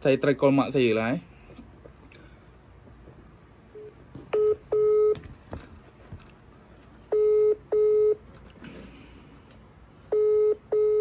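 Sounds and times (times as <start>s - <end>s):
telephone ringback beeps: 7.1s - 8.2s, 10.1s - 11.0s.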